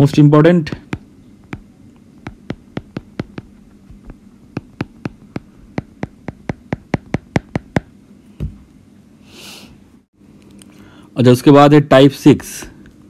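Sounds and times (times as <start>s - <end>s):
stylus tapping on drawing tablet: 0.1s - 7.9s.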